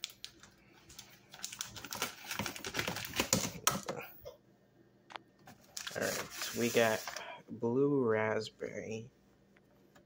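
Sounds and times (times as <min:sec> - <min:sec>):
plastic wrap crinkling: 0:00.0 - 0:03.8, 0:05.6 - 0:07.2.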